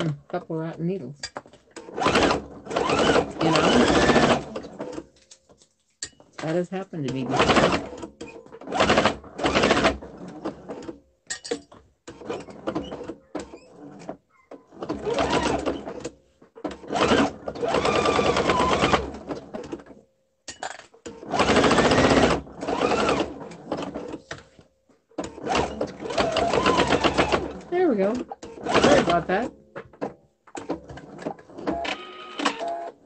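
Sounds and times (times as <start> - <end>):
sewing machine stitching: 1.7 - 5.1, 6.4 - 11.0, 12.0 - 20.0, 21.0 - 24.5, 25.2 - 29.5, 30.5 - 33.0.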